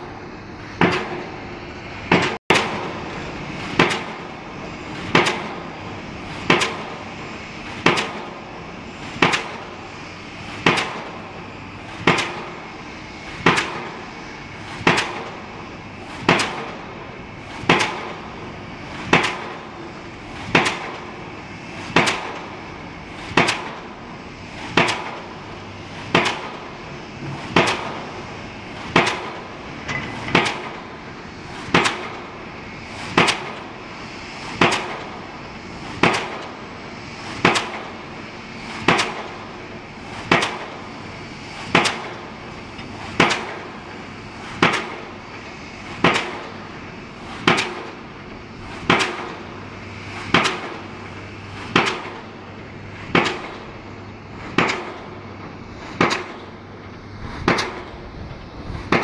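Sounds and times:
pile hammer bangs with metallic ring: 0.8s - 1.3s, 2.1s - 3.0s, 3.8s - 4.2s, 5.1s - 5.6s, 6.4s - 7.0s, 16.2s - 16.8s, 17.7s - 18.2s, 19.0s - 19.6s, 20.5s - 21.0s, 21.9s - 22.4s, 23.3s - 23.8s, 27.3s - 28.0s, 28.9s - 30.8s, 31.7s - 32.2s, 33.1s - 33.6s, 36.0s - 36.5s, 37.4s - 38.0s, 38.8s - 39.4s, 40.3s - 40.7s, 41.7s - 42.2s, 43.1s - 43.7s, 44.6s - 45.1s, 46.0s - 46.6s, 47.4s - 48.0s, 48.8s - 49.4s, 50.3s - 51.0s, 51.7s - 52.3s, 53.1s - 53.7s, 54.4s - 55.2s, 55.9s - 56.6s, 57.4s - 57.9s.

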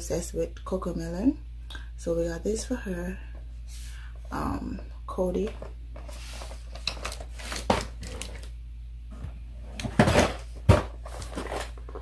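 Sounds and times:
packaging rustling and crinkling: 6.1s - 8.5s, 9.8s - 12.0s
knocks on boxes: 9.8s - 11.1s.

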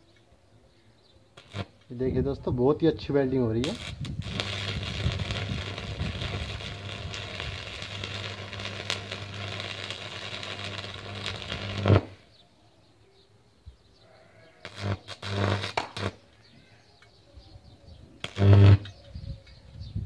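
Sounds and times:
welding arc crackling: 1.4s - 2.0s, 3.6s - 12.2s, 14.6s - 16.2s, 18.2s - 19.0s.

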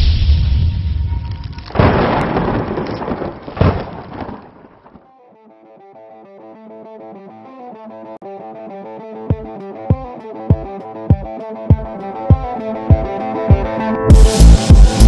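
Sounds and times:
rumbling boom: 0.0s - 5.0s
sudden hits: 0.0s - 5.0s.

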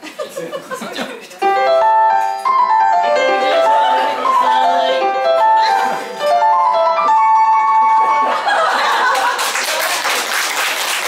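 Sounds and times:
electronic keyboard melody: 1.4s - 8.9s.

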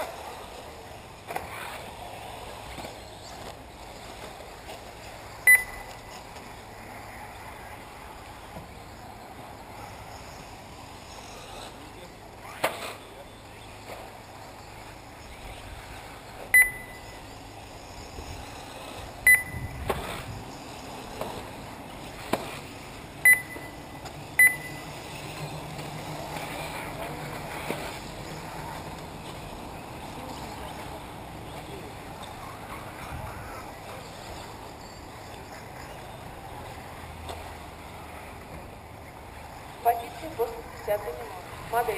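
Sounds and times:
outdoor background noise: 0.0s - 41.9s
short electronic beeps: 5.5s - 6.1s, 16.5s - 17.2s, 19.2s - 19.8s, 23.2s - 25.0s.

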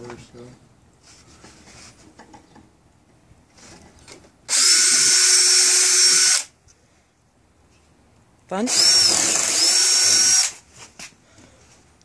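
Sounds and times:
power drill drilling into wood: 4.5s - 6.5s, 8.7s - 10.6s.

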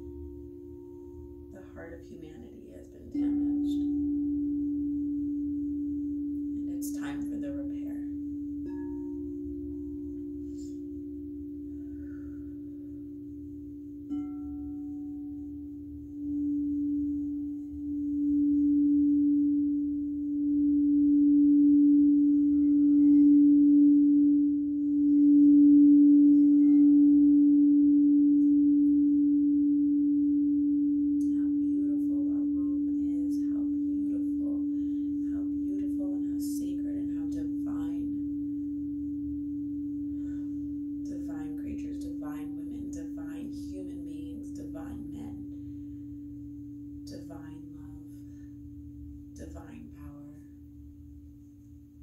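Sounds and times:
singing bowl ringing: 0.0s - 52.0s.

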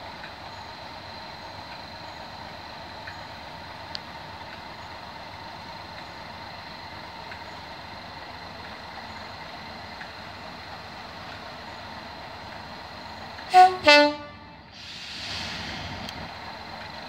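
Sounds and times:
diesel locomotives idling: 0.0s - 17.0s
two-tone locomotive horn: 13.5s - 14.7s
hiss: 14.7s - 17.0s.

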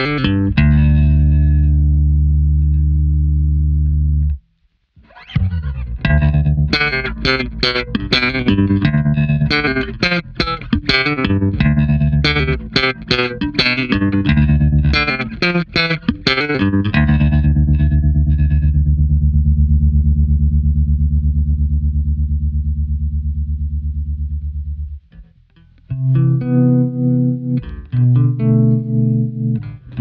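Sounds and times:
bass note pulsing with tremolo: 0.0s - 4.4s, 5.3s - 25.2s
electric bass plucked notes: 0.0s - 4.4s, 5.0s - 30.0s.

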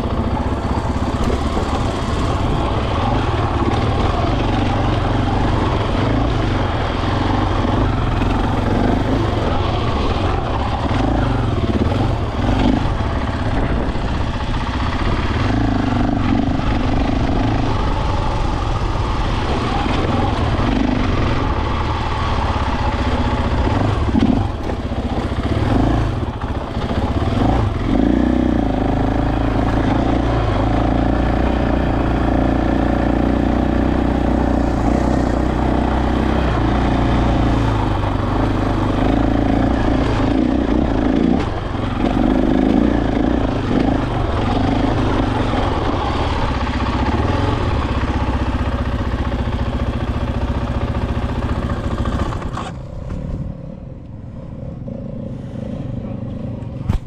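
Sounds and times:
dirt bike engine: 0.0s - 57.0s.

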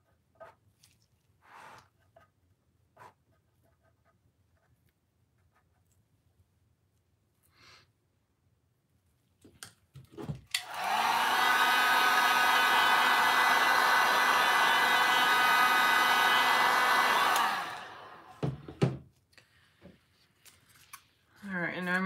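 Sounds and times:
heat gun blowing: 10.6s - 18.5s.

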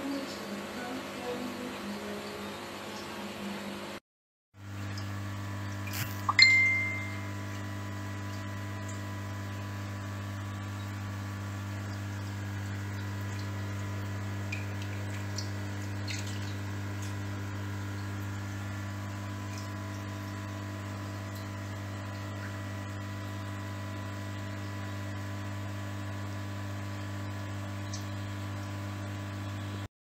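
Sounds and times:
aquarium air pump humming: 0.0s - 4.0s, 4.6s - 29.9s
air bubbles trickling: 4.7s - 22.7s
small drip-like ticks: 4.8s - 6.5s, 8.2s - 9.4s, 10.0s - 11.0s, 11.7s - 18.3s, 19.2s - 20.6s, 21.2s - 22.6s, 27.3s - 28.8s.

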